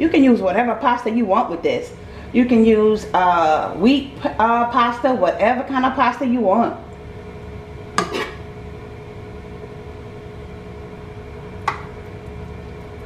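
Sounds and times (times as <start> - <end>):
steady hum: 0.0 - 13.0
spatula scraping a pan: 8.0 - 8.5.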